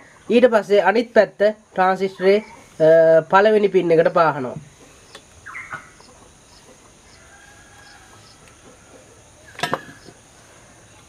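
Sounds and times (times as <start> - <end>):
faint bird chirps: 4.8 - 11.0.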